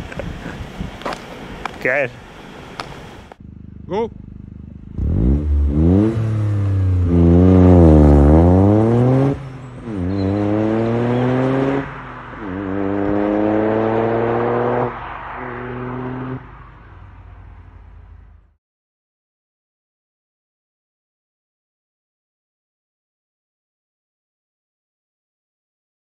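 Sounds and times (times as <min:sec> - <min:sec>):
car accelerating through gears: 0:04.9 - 0:16.7.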